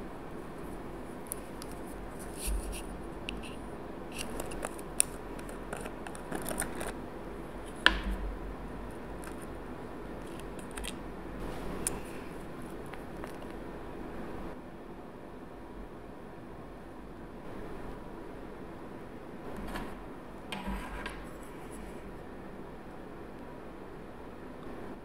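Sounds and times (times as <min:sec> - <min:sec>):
light clicks and scrapes: 0:01.3 - 0:07.0.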